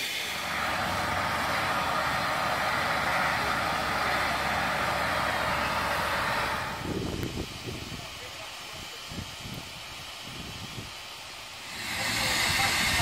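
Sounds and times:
steam locomotive hissing: 0:00.0 - 0:13.0.

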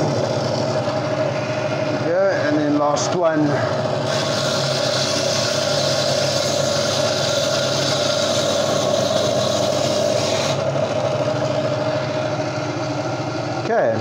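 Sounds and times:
bandsaw motor whining: 0:00.0 - 0:14.0
saw blade grinding coral: 0:03.2 - 0:12.0.

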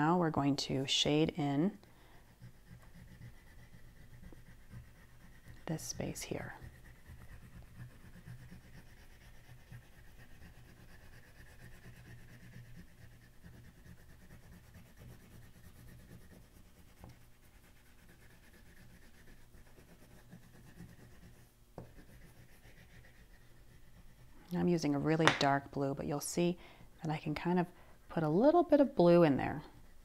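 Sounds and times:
oil pastel scribbling on paper: 0:01.4 - 0:26.2, 0:28.2 - 0:30.0.

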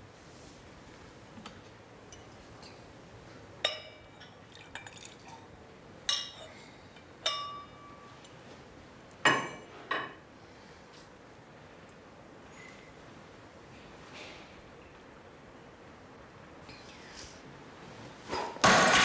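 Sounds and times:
glassware clinking and ringing: 0:03.6 - 0:05.1, 0:06.1 - 0:06.5, 0:07.2 - 0:08.1.

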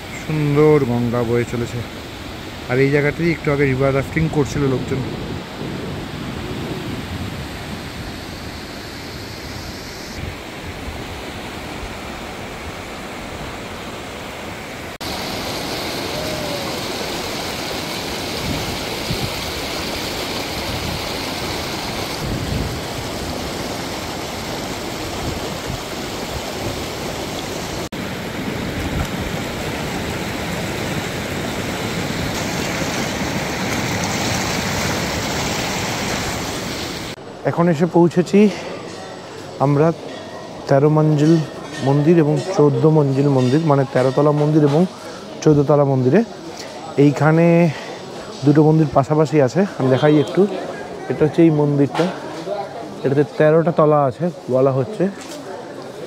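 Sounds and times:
river water rushing: 0:00.0 - 0:37.4.

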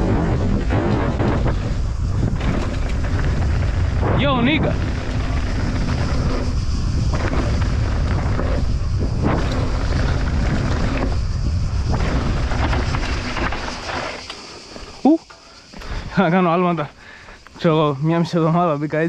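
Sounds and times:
wind buffeting microphone: 0:00.0 - 0:14.0
bike knocking and rattling: 0:00.0 - 0:15.0
bike tyres rumbling on gravel: 0:00.0 - 0:16.9.

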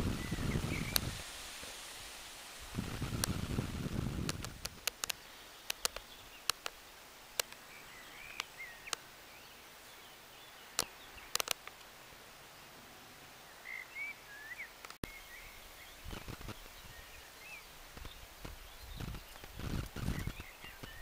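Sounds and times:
wind buffeting microphone: 0:00.0 - 0:01.6, 0:02.6 - 0:04.9, 0:18.0 - 0:21.0
sharp clicks: 0:04.2 - 0:07.6, 0:10.8 - 0:11.9
faint bird chirps: 0:07.6 - 0:11.5, 0:13.4 - 0:21.0.

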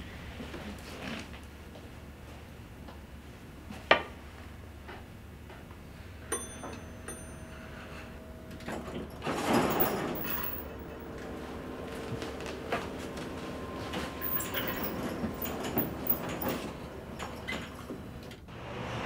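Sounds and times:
elevator doors sliding open: 0:06.5 - 0:19.0.

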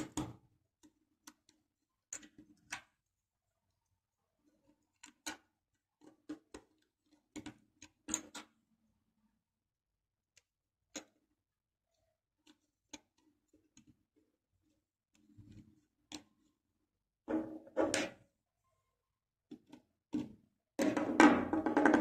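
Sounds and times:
plastic parts clicking and knocking: 0:00.0 - 0:03.1, 0:04.5 - 0:08.6, 0:19.5 - 0:22.0.

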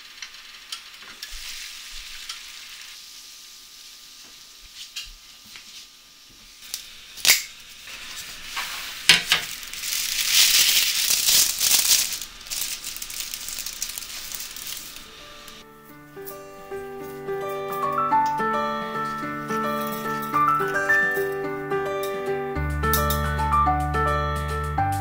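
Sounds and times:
food sizzling: 0:00.0 - 0:22.4
utensils clicking: 0:06.7 - 0:15.6.

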